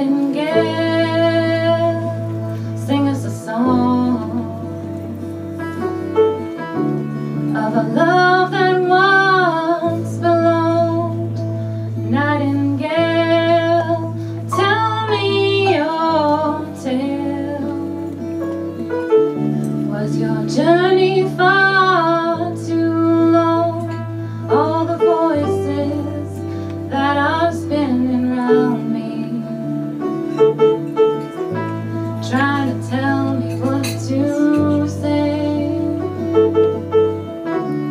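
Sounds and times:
woman singing with vibrato: 0.0s - 5.2s, 7.5s - 18.3s, 19.8s - 30.0s, 32.2s - 36.3s
live band keyboard and guitars: 0.0s - 37.9s.

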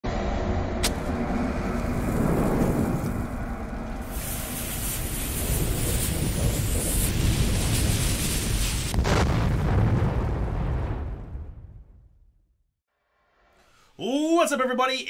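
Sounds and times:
steady low rumble: 0.0s - 12.0s
fire hissing and crackling: 1.0s - 11.0s.

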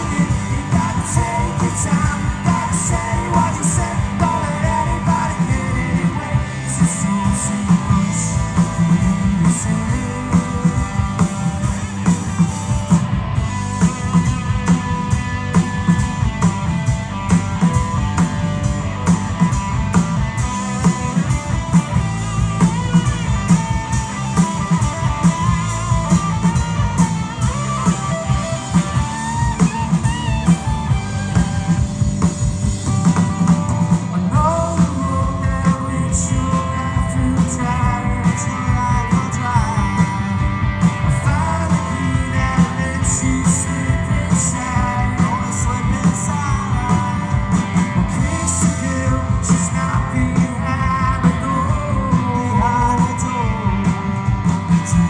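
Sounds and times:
person singing: 0.0s - 11.4s, 34.2s - 40.5s, 41.1s - 47.6s, 48.2s - 54.1s
live rock band playing: 0.0s - 55.0s.

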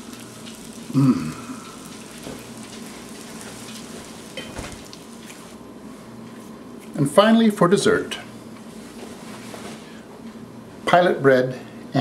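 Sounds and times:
bacon sizzling in a skillet: 0.0s - 5.6s.

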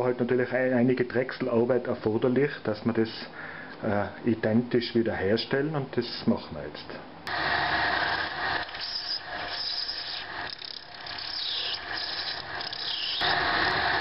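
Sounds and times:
cutting tool rasping on lathe: 7.3s - 14.0s
lathe running: 7.3s - 14.0s.

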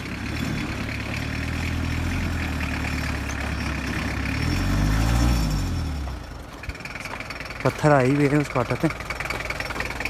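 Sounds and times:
pickup truck engine revving: 0.0s - 6.2s
tires crawling over rubble: 0.0s - 10.0s.

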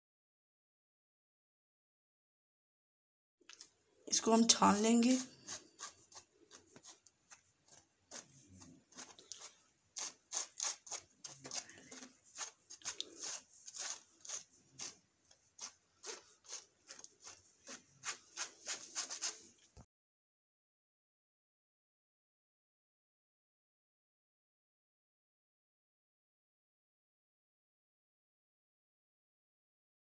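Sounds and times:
spoon scraping in plastic sieve: 4.3s - 19.7s.

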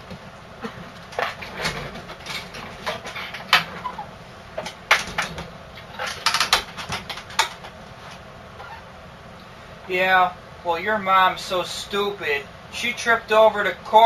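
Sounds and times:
office chair creaking: 0.0s - 8.9s.

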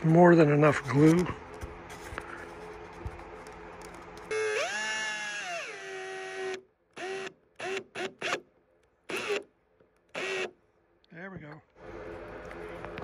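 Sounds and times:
power drill driving a screw: 4.3s - 8.4s, 9.1s - 9.5s, 10.1s - 10.5s.

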